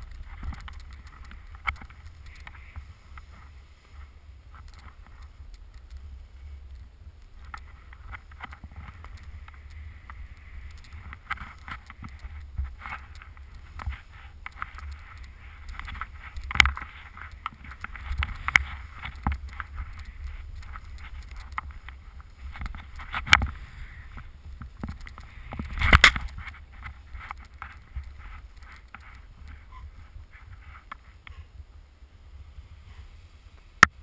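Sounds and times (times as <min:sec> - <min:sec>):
skis scraping through snow: 0:00.0 - 0:34.0
wind rumble on microphone: 0:00.0 - 0:34.0.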